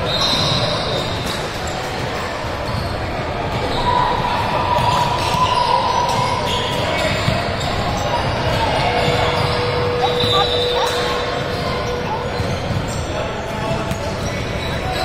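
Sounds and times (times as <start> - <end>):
spectator chatter: 0.0 - 15.0
basketball bouncing on court: 4.8 - 13.1.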